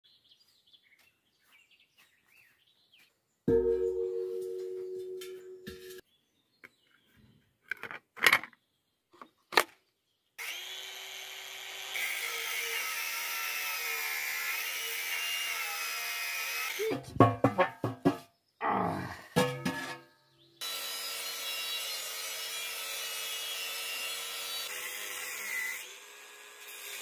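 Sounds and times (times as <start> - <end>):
angle grinder cutting metal: 10.4 - 17.0, 20.6 - 27.0.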